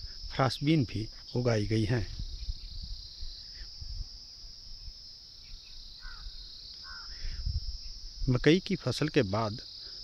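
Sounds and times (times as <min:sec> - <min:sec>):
insect chorus chirring: 0:00.0 - 0:10.0.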